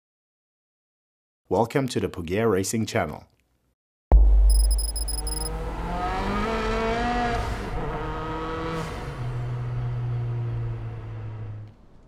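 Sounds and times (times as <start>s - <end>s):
car engine revving: 5.5s - 11.6s.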